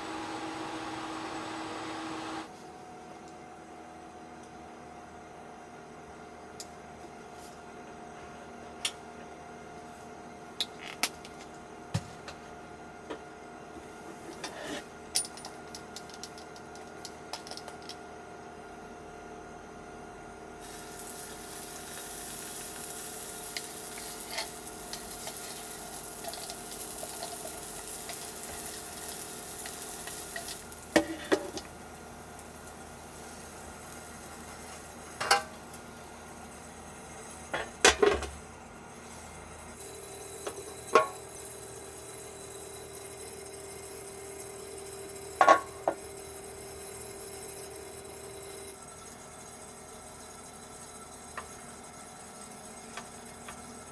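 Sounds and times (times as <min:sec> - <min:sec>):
batter sizzling on hot plate: 0:20.6 - 0:37.6, 0:39.0 - 0:53.9.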